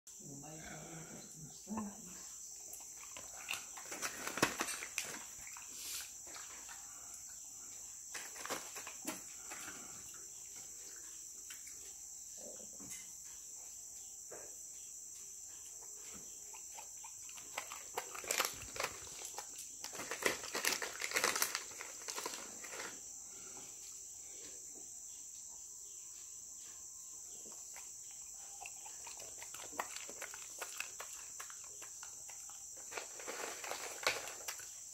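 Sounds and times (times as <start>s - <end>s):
crickets droning: 0.1s - 34.9s
dog crunching crackers: 2.7s - 6.9s, 8.1s - 9.6s, 16.6s - 23.0s, 28.5s - 34.9s.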